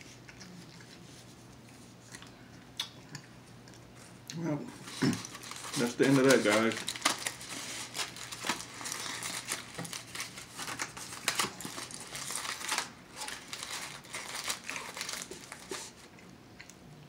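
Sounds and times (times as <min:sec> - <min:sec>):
foil being crumpled: 0:04.8 - 0:16.1.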